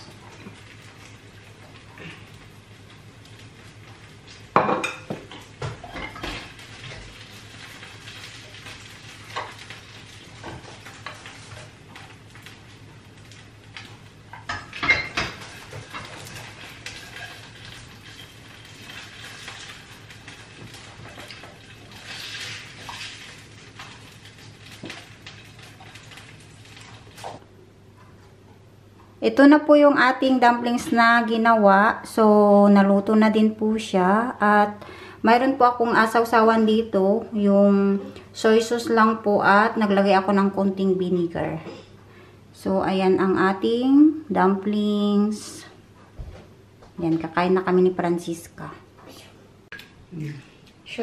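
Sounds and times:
light sizzling: 0.0 - 27.6.

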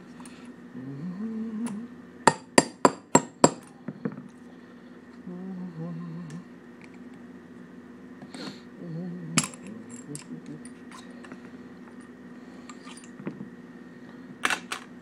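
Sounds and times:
metal tools clinking: 9.4 - 11.2, 12.7 - 13.3.

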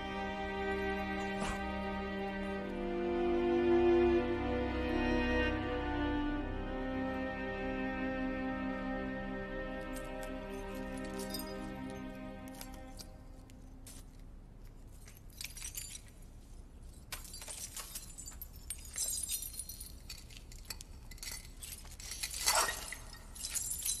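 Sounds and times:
broken glass clinking: 11.0 - 11.7, 15.0 - 16.1, 17.1 - 24.0.

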